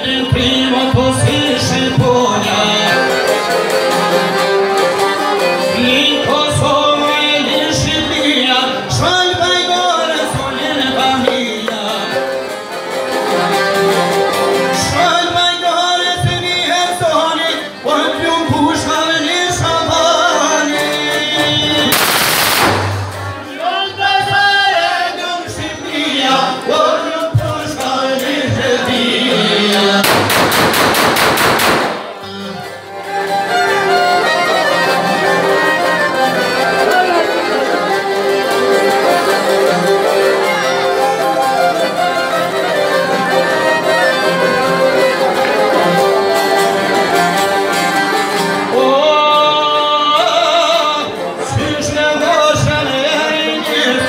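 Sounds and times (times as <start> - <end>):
man singing: 0.0 - 12.7, 14.4 - 30.9, 32.1 - 32.9, 43.4 - 54.0
plucked lute: 0.0 - 22.0, 32.0 - 54.0
violin: 0.0 - 30.1, 32.0 - 54.0
fast rattling burst: 21.9 - 23.0, 30.0 - 32.2.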